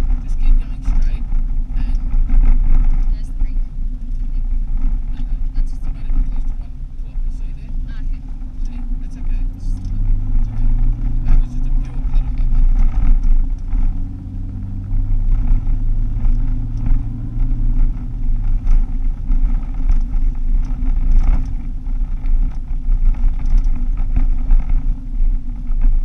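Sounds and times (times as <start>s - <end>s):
car engine hum: 0.0s - 26.0s
road rumble on dirt road: 0.0s - 26.0s
clicks and rattles: 14.8s - 24.9s.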